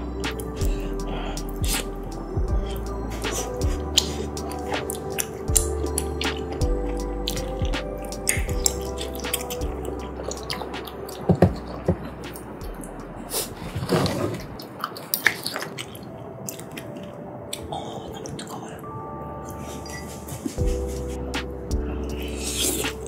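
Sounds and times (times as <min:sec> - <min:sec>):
soft background music: 0:00.0 - 0:23.0
wet chewing and smacking: 0:02.6 - 0:12.5, 0:14.4 - 0:18.6.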